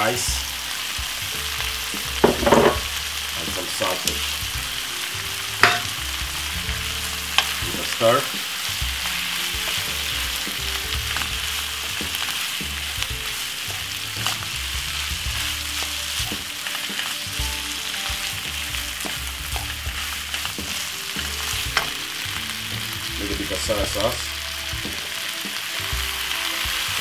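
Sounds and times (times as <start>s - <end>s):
food sizzling in a frying pan: 0.0s - 27.0s
wooden spoon scraping a pan: 5.6s - 27.0s.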